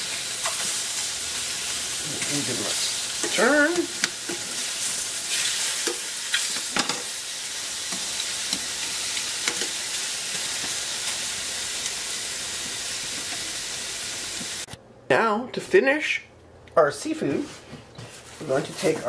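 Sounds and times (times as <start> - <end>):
squid sizzling in oil: 0.0 - 14.7
metal tongs clicking on pan: 3.2 - 4.4, 5.8 - 7.1, 7.9 - 9.8.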